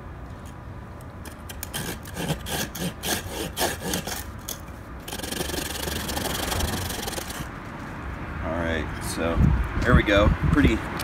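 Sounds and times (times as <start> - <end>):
saw rasping through wood: 1.5 - 7.5.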